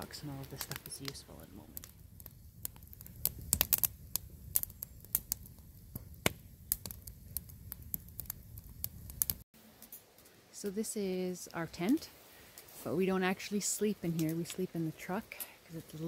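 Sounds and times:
low rumble of burning: 0.0 - 16.0
wood fire crackling: 0.0 - 16.0
sharp pops: 1.8 - 10.0.

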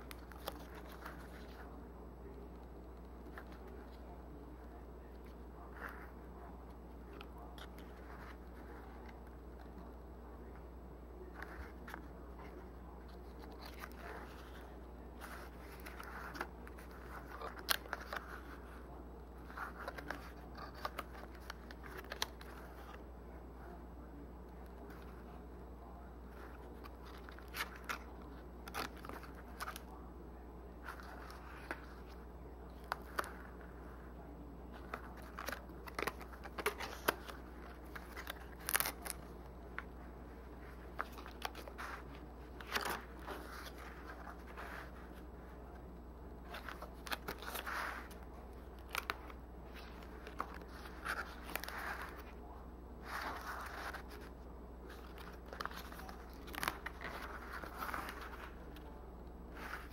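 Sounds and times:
stiff paper pages rustling: 0.0 - 9.9, 11.2 - 23.8, 26.2 - 30.1, 30.8 - 59.9.

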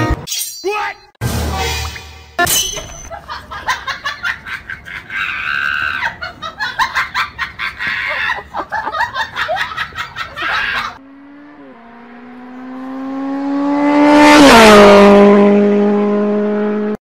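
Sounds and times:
race car engine passing: 11.0 - 17.0.

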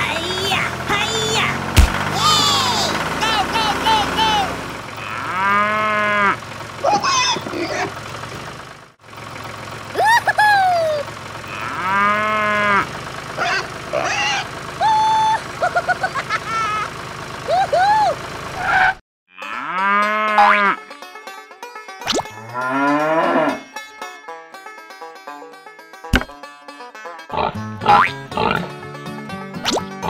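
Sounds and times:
low engine hum: 0.0 - 18.8
cow mooing: 5.0 - 6.4, 11.5 - 12.9, 19.3 - 20.8, 22.3 - 23.7.

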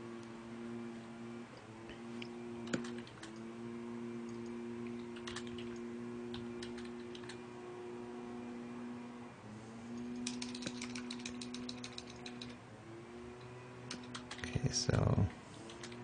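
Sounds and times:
faint steady hum: 0.0 - 16.0
keyboard keystroke clicks: 2.7 - 3.4, 4.4 - 7.4, 10.1 - 12.6, 13.9 - 14.5.

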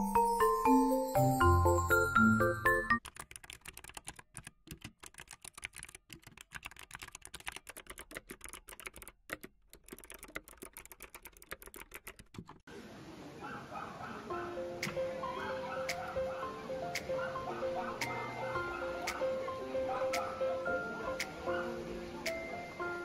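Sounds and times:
chiming music: 0.0 - 3.0
keyboard key clicks: 3.0 - 12.6.

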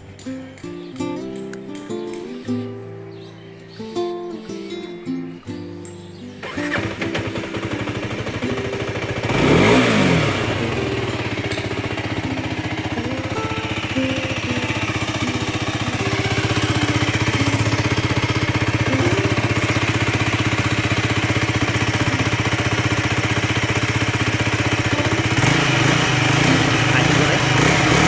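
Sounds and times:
motorcycle engine idling: 5.6 - 28.0.

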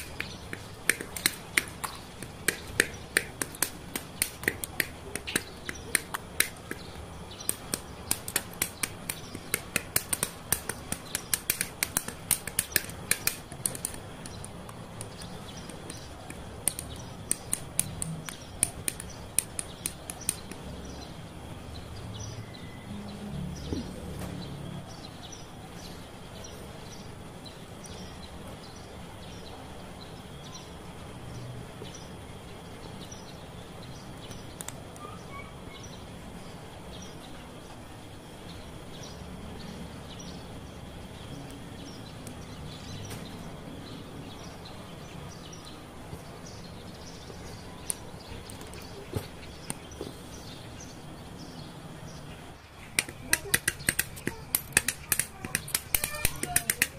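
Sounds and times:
birds chirping: 0.0 - 56.9
steady background hiss: 0.0 - 56.9
plastic parts snapping together: 52.9 - 56.9.

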